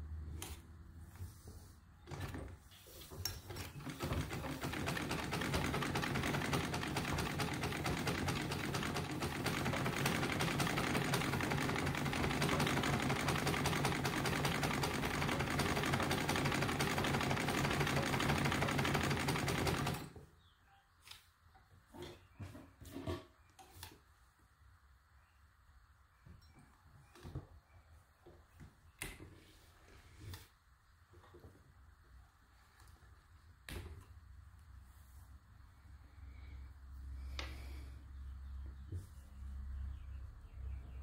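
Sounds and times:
treadle sewing machine clatter: 3.4 - 20.2.

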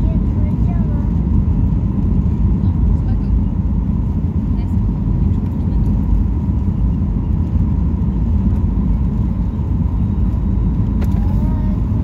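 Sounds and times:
airplane cabin engine rumble: 0.0 - 12.0.

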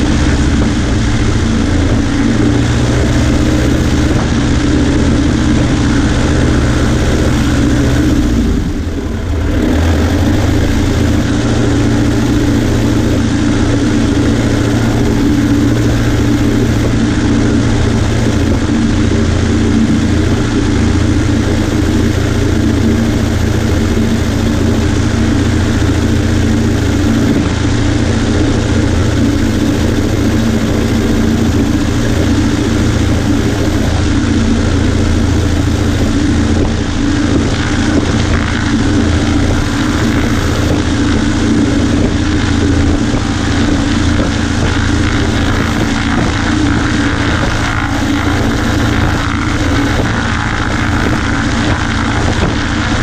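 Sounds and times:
propeller plane engine drone: 0.0 - 53.0.

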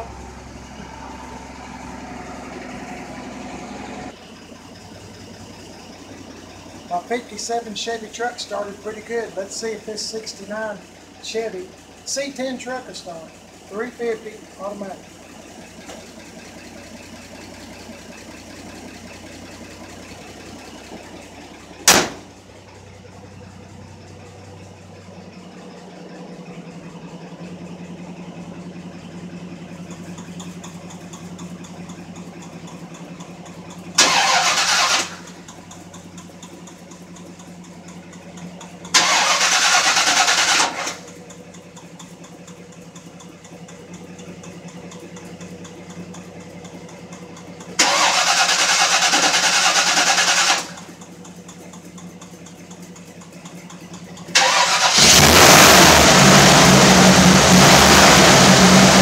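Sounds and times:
engine idling: 0.0 - 59.0
sharp bang: 21.9 - 22.3.

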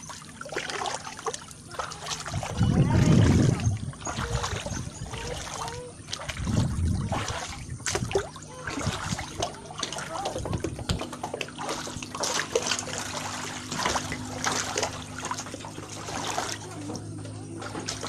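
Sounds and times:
floodwater trickling and sloshing: 0.0 - 18.0
loud low rumbles: 2.2 - 5.3, 6.3 - 11.1.

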